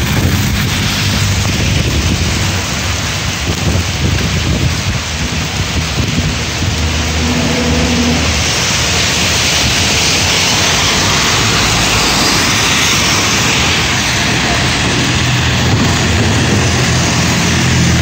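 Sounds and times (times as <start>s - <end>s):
heavy rain pouring: 0.0s - 18.0s
truck engine low drone: 0.0s - 18.0s
vehicles driving through water: 0.0s - 18.0s.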